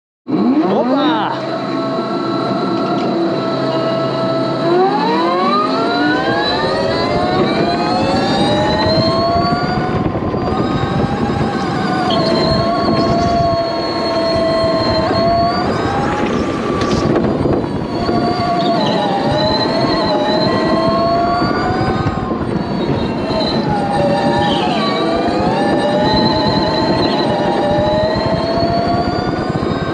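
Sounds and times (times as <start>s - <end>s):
electric go-kart motor whine: 0.3s - 29.9s
steady rushing noise: 0.4s - 29.9s.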